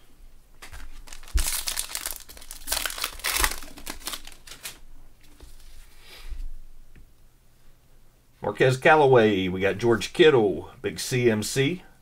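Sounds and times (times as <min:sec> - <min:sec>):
foil wrapper tearing and crinkling: 0:00.6 - 0:04.8.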